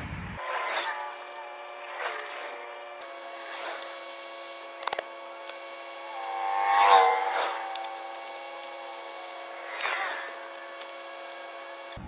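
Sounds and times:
faint hum: 0.1 - 12.0
clicks: 1.1 - 12.0
tape ripping off roll: 4.7 - 11.5.

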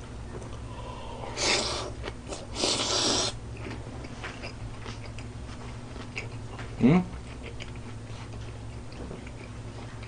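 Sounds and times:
chewing clicks: 6.0 - 8.0.

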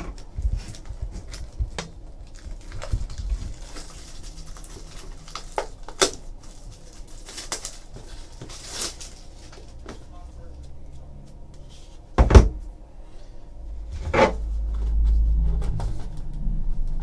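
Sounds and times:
plastic shrink-wrap crinkling: 0.1 - 10.2.

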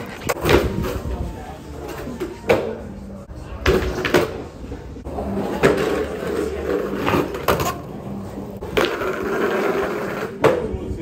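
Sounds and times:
skateboard wheel rumble: 8.6 - 10.7.

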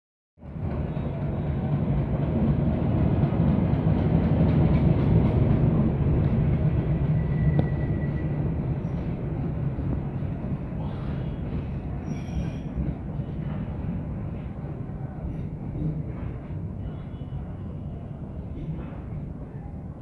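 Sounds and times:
train rumbling on rails: 0.4 - 20.0
thin high squeal: 12.0 - 12.8.

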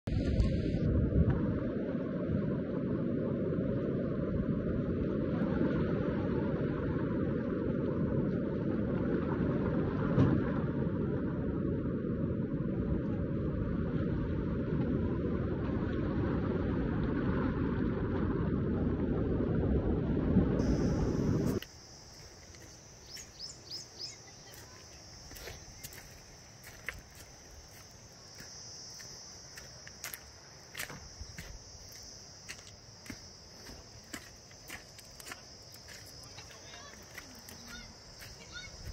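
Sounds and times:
flood water roaring: 20.6 - 38.9
footsteps on gravel: 20.6 - 38.9
high-pitched insect drone: 20.6 - 38.9.

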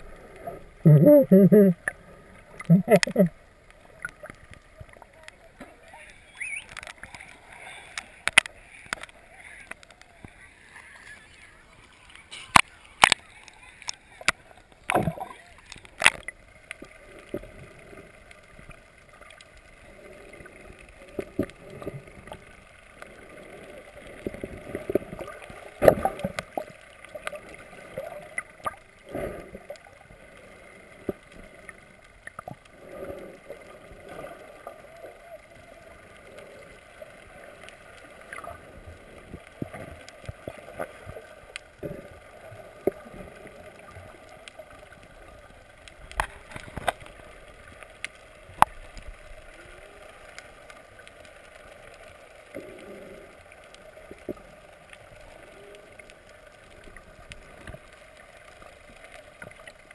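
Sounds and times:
underwater hiss and gurgle: 0.0 - 59.9
underwater knocks and clicks: 0.9 - 5.8, 8.0 - 10.4, 12.3 - 13.2, 13.8 - 17.8, 24.1 - 28.9, 43.9 - 47.2, 48.1 - 49.1.

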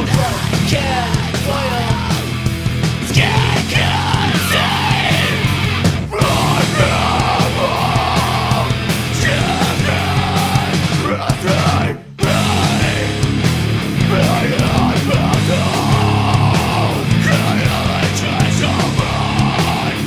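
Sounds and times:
metal song with distorted guitars: 0.0 - 20.0
person yelling vocals: 3.1 - 5.5, 6.1 - 13.1, 14.0 - 20.0.

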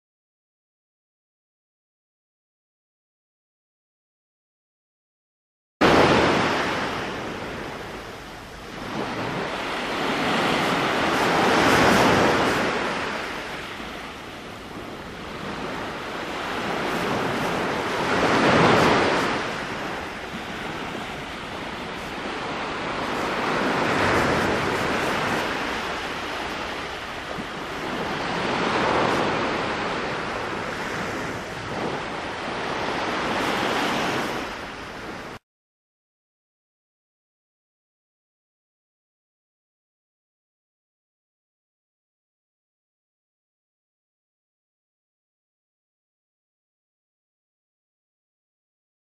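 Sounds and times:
small waves breaking on beach: 5.8 - 35.4.

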